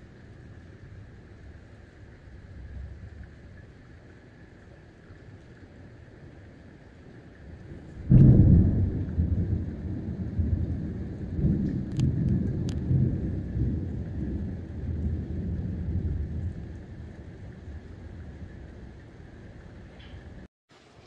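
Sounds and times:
heavy rain hiss: 0.0 - 21.0
thunder crack and rumble: 7.6 - 20.5.

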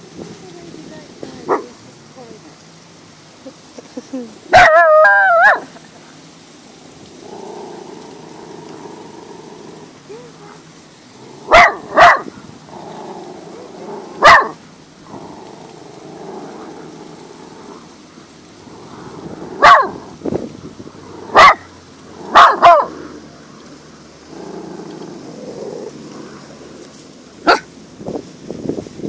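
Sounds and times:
dog barking: 4.5 - 5.7, 11.5 - 12.4, 14.2 - 14.6, 19.6 - 20.0, 21.3 - 21.7, 22.3 - 23.0, 27.4 - 27.7.

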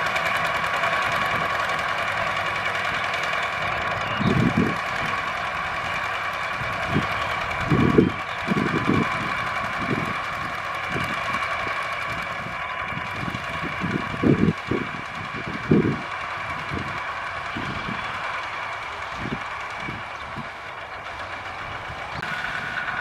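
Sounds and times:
walking tractor engines droning: 0.0 - 23.0.

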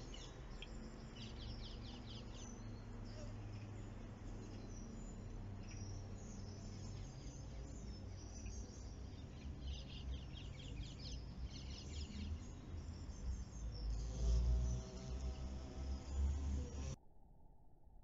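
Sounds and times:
bee buzzing: 3.0 - 4.2, 10.2 - 17.0.

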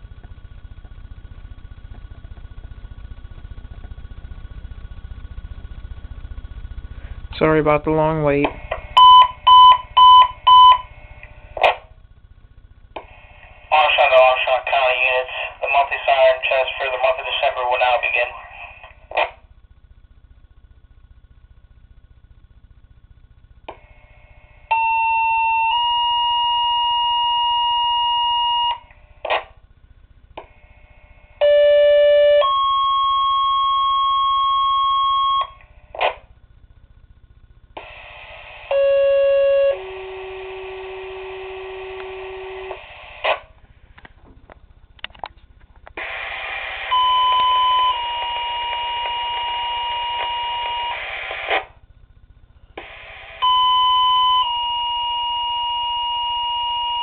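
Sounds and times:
radio static hiss: 0.0 - 9.4, 13.0 - 19.5, 37.0 - 51.8, 52.7 - 53.5
radio squelch bursts: 13.0 - 19.4, 46.0 - 51.8, 52.8 - 53.8.

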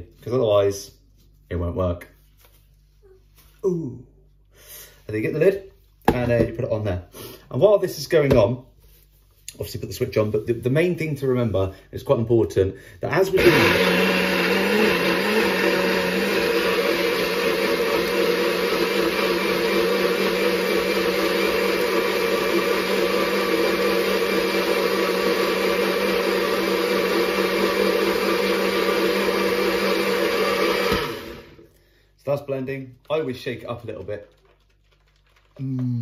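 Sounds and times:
small blender running: 13.4 - 31.6.

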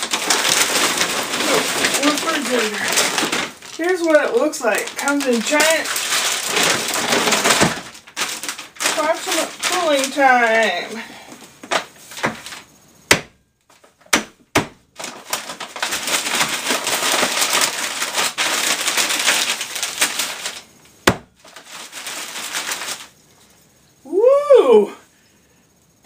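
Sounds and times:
dry ice crunching: 0.0 - 11.0, 14.9 - 23.1.

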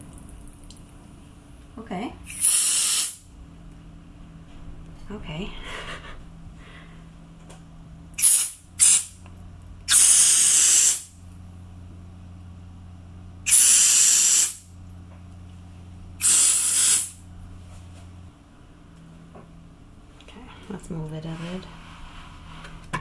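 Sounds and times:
aerosol spray hissing: 2.3 - 3.2, 8.2 - 9.2, 9.9 - 11.1, 13.5 - 14.6, 16.2 - 17.2.

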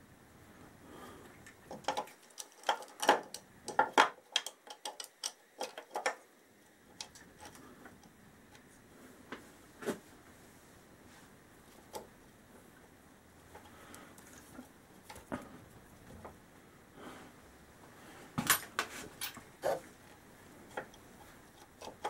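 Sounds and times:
metal parts clicking and clinking: 18.4 - 19.4.

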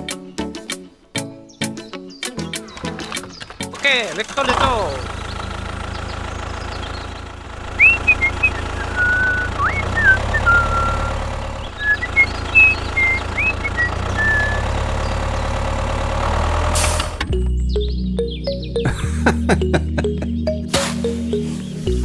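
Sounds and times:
tractor engine idling: 3.3 - 17.6
high whistled chirps: 7.8 - 14.7.

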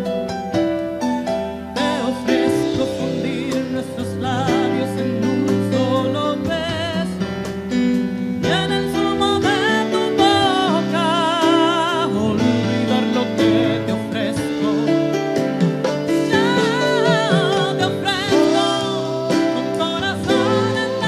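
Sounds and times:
song with guitar accompaniment: 0.0 - 21.0.

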